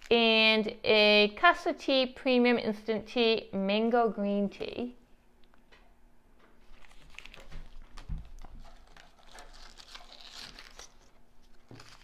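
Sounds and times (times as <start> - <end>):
packaging rustling and crackling: 6.6 - 12.0.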